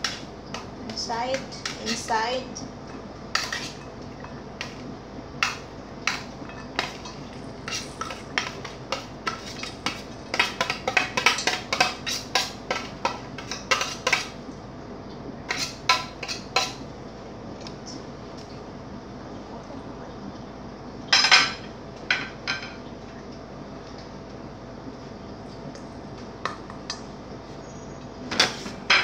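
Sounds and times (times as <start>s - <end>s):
metal utensil scraping steel tray: 6.8s - 8.2s.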